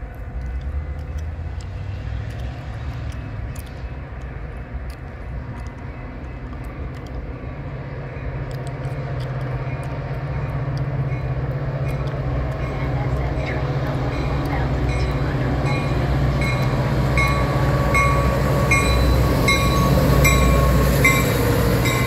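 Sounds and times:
train rumble: 0.0s - 22.0s
faint high ticks: 0.1s - 7.3s, 8.4s - 12.7s.

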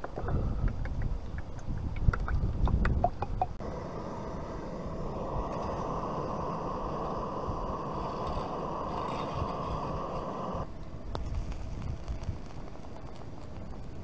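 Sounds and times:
gas stove burner hissing: 3.6s - 14.0s.

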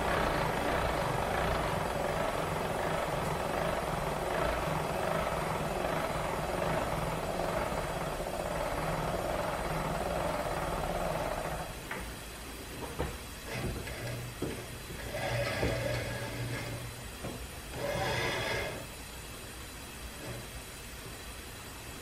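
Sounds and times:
drill grinding whir: 13.5s - 17.0s, 17.7s - 19.1s.

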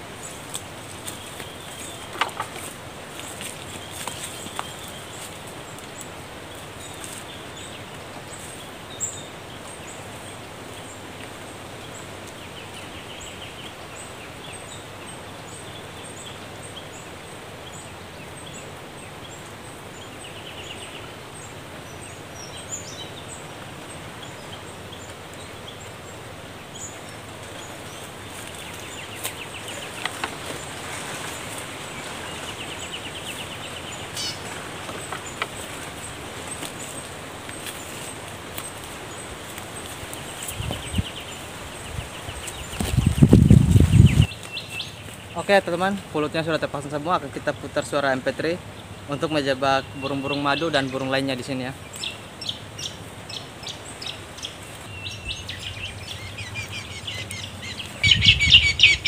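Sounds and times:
outdoor background noise: 0.0s - 59.0s
small birds chirping and trilling: 0.0s - 59.0s
twigs snapping and rustling: 0.3s - 6.2s, 28.3s - 32.5s, 34.2s - 41.0s, 42.4s - 45.2s.

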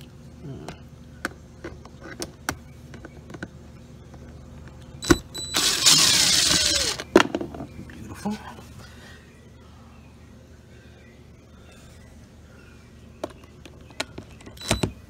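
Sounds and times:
cordless drill whirring: 5.0s - 7.0s.

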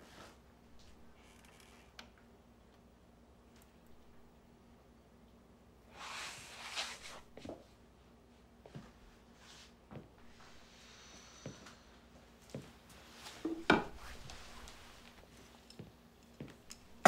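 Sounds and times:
low steady hum: 0.0s - 6.0s, 6.6s - 17.0s
footsteps on wooden floor: 12.4s - 16.7s
clothing rustle: 12.4s - 17.0s.

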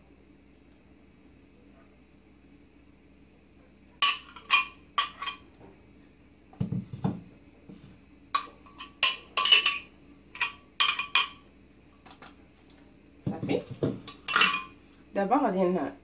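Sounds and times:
metal spoon clinking in blender jar: 8.4s - 11.4s.

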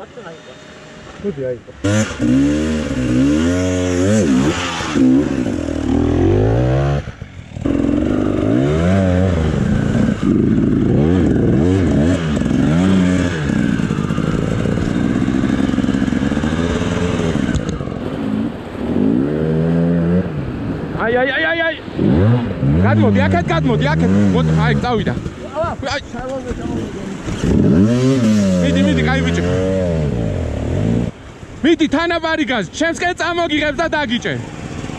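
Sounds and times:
motorcycle engines revving: 0.0s - 34.9s
rushing water: 13.8s - 34.9s.

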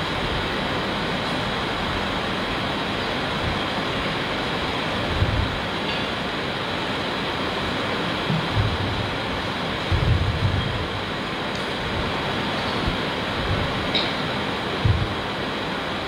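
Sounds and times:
steady rushing noise: 0.0s - 16.0s
short low thumps: 8.3s - 9.1s, 9.9s - 10.8s, 14.8s - 15.3s.

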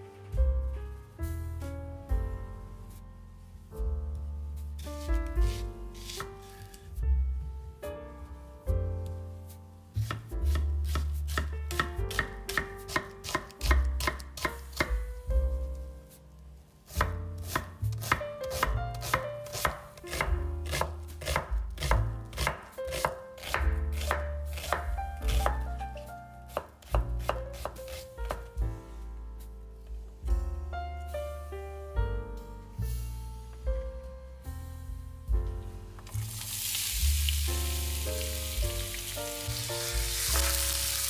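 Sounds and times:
background music: 0.0s - 41.0s
knife chopping on cutting board: 5.0s - 6.3s, 10.0s - 15.0s, 16.9s - 28.5s.

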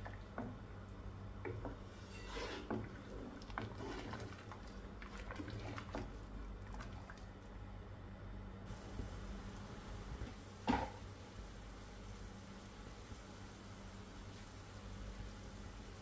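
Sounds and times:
liquid swishing and sloshing: 2.0s - 7.6s.

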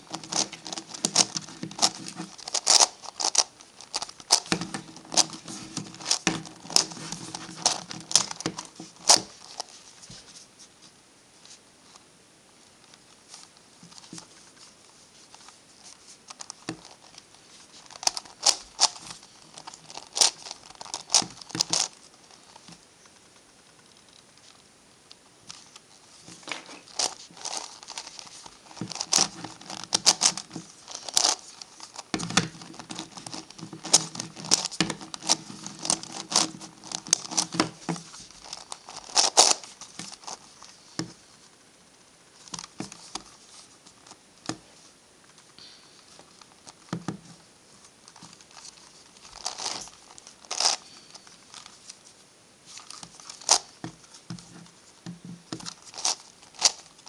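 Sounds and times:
twisty puzzle clicking and rattling: 0.1s - 9.7s, 16.3s - 22.7s, 26.3s - 40.7s, 48.1s - 51.8s, 52.7s - 54.6s, 55.4s - 57.0s.

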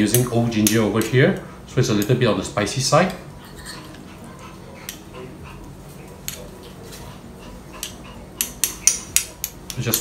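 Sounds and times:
low steady hum: 0.0s - 10.0s
metal spoons clinking on bowls: 3.0s - 4.0s.

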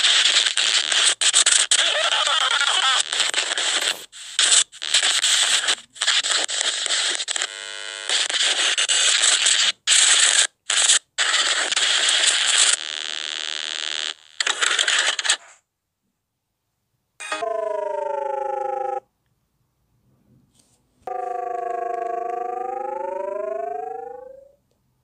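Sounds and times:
harsh static noise bursts: 0.0s - 15.6s.

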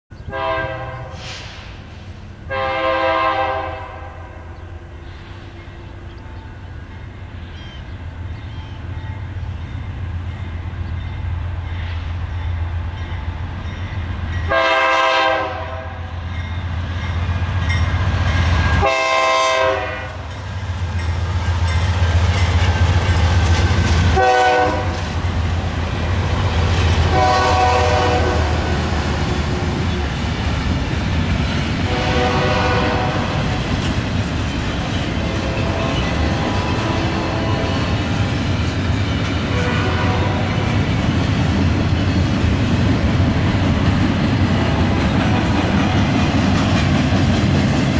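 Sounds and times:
diesel locomotive engine rumble: 0.1s - 47.9s
train horn blasts: 0.2s - 1.4s, 2.5s - 6.7s, 14.3s - 16.6s, 18.7s - 20.4s, 24.1s - 25.1s, 27.0s - 29.3s, 31.8s - 33.7s, 35.1s - 38.2s, 39.4s - 40.8s
train wheels clickety-clack: 16.3s - 47.9s.

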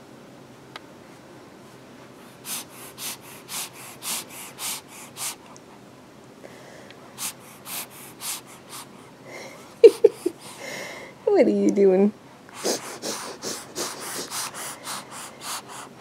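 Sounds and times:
baby sniffing through nose: 2.2s - 5.4s, 7.2s - 9.0s, 12.5s - 16.0s.

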